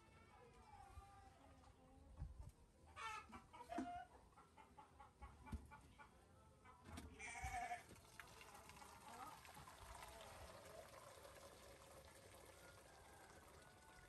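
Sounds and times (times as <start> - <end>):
faint farmyard animal calls: 2.8 - 7.9.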